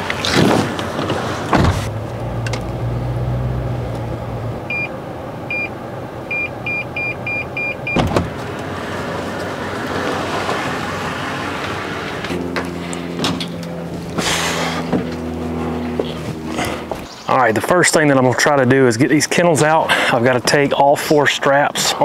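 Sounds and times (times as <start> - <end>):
engine hum: 0.0 - 22.0
parking sensor beeping: 4.6 - 8.3.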